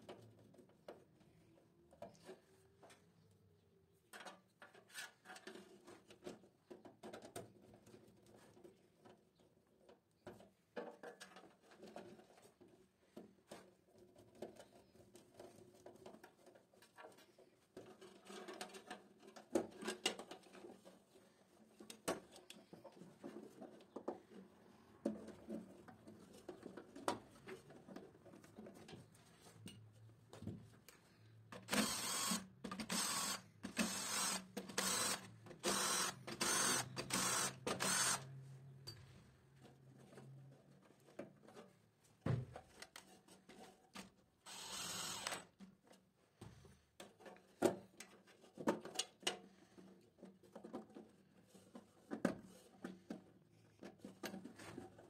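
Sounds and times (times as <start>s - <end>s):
cordless drill bursts: 31.6s - 38.3s, 44.5s - 45.4s.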